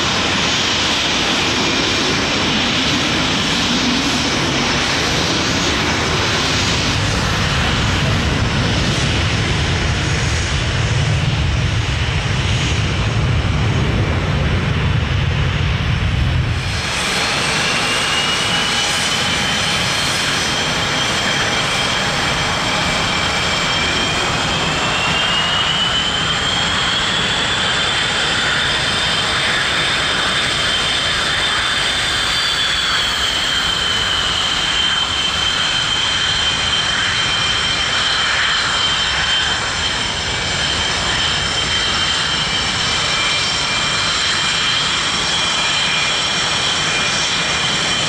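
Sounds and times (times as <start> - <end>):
jet engines whining: 0.0 - 48.0.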